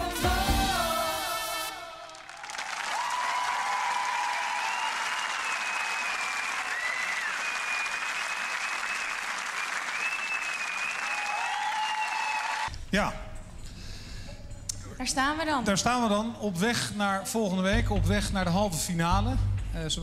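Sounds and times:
audience applauding: 0:02.0 - 0:12.7.

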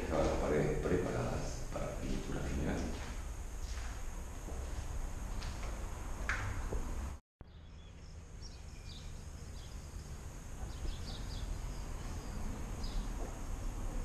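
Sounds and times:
small birds chirping: 0:07.4 - 0:14.0.

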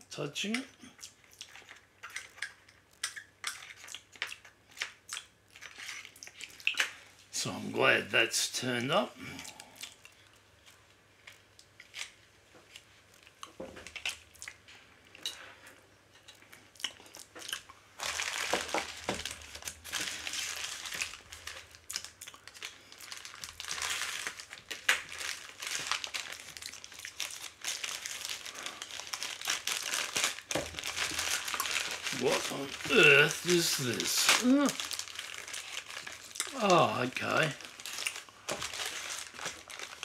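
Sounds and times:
plastic mailer bag crinkling: 0:18.0 - 0:40.0.

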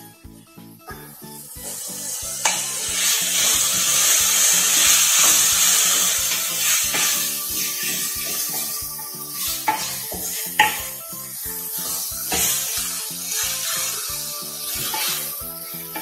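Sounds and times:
vegetables sizzling in oil: 0:01.2 - 0:16.0
wooden spatula scraping pan: 0:11.8 - 0:16.0.

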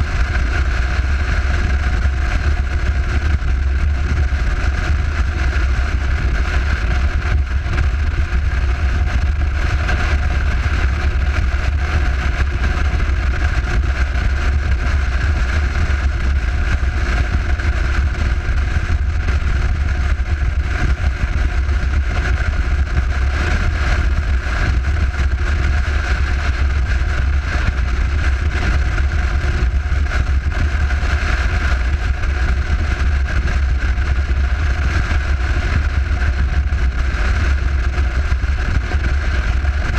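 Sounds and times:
motorcycle engine drone: 0:00.0 - 0:39.9
wind rumble on microphone: 0:00.0 - 0:39.9.

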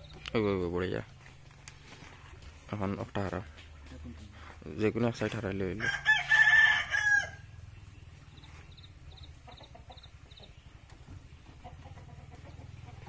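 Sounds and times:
rooster crowing: 0:05.8 - 0:07.6
chickens clucking: 0:07.7 - 0:13.0.

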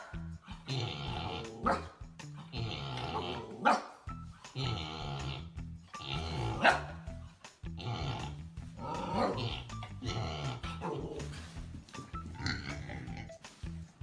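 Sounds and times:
dog growling and barking: 0:00.0 - 0:03.9, 0:04.5 - 0:07.1, 0:07.7 - 0:11.5
background music: 0:00.0 - 0:14.0.

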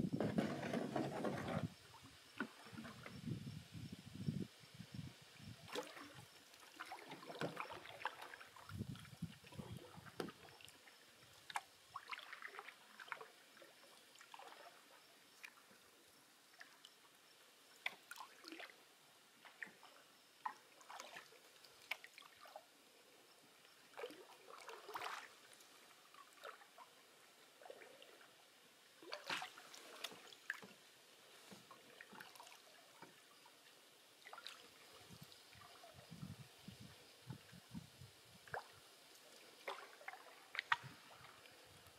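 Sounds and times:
paddle splashing water: 0:00.2 - 0:03.2, 0:05.6 - 0:15.8, 0:17.7 - 0:18.8, 0:19.4 - 0:22.7, 0:23.8 - 0:28.3, 0:29.0 - 0:37.8, 0:38.4 - 0:41.9.

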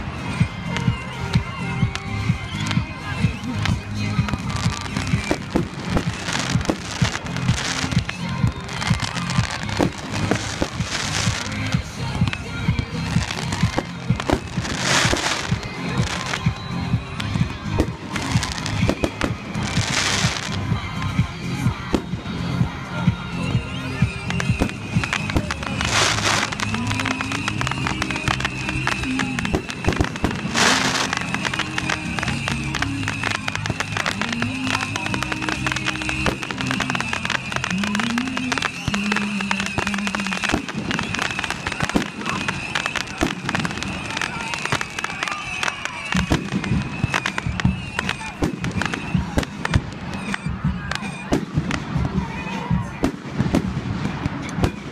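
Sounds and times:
fireworks bangs and pops: 0:00.0 - 0:54.9
music: 0:00.0 - 0:54.9
hissing crackle: 0:23.9 - 0:52.4.

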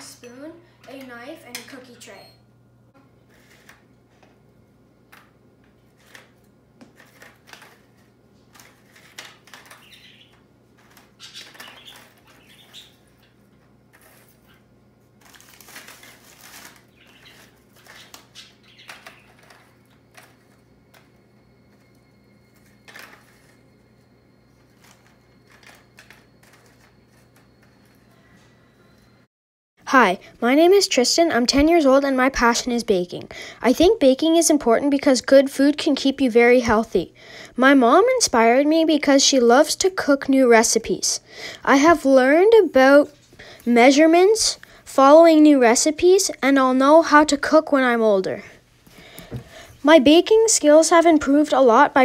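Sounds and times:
low steady hum: 0:00.0 - 0:52.0
plastic sleeve rustling: 0:05.9 - 0:21.2.

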